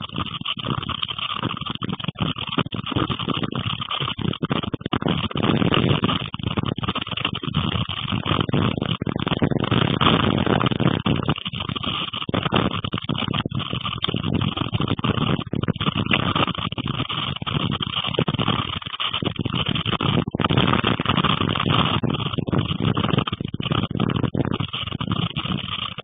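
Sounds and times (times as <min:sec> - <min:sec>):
heavy rain: 0:00.0 - 0:26.0
storm wind gusts: 0:00.0 - 0:26.0.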